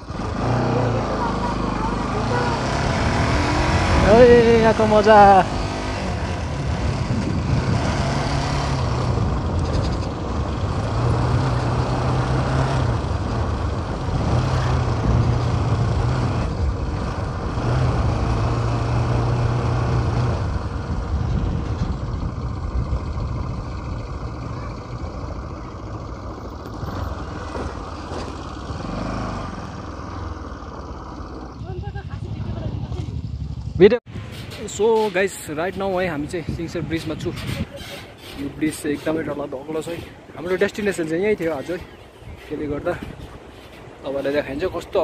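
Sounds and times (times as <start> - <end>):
motorcycle engine running: 0.0 - 34.4
wind and road noise: 0.0 - 45.0.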